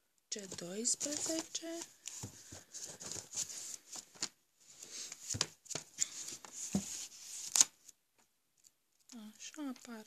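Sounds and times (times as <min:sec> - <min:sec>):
paper rustling and crinkling: 0:00.5 - 0:07.9.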